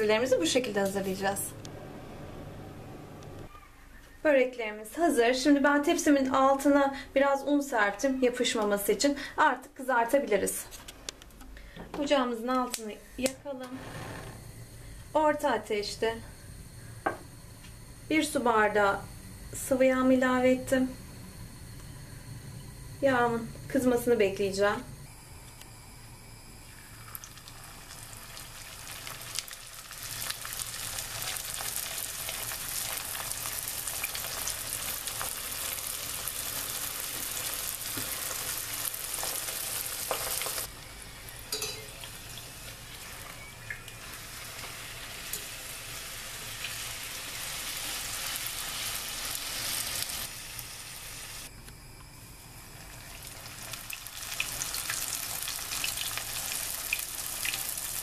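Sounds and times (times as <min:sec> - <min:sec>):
dough sizzling in hot oil: 0:26.6 - 0:51.5, 0:52.4 - 0:58.0.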